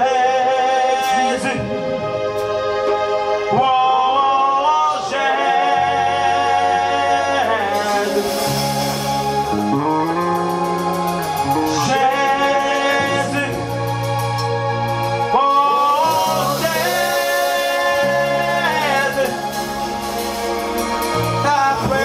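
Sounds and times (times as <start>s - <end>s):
live band: 0.0s - 22.0s
low bass notes: 0.0s - 22.0s
man singing through a pa: 11.7s - 13.8s, 15.3s - 19.6s, 21.4s - 22.0s.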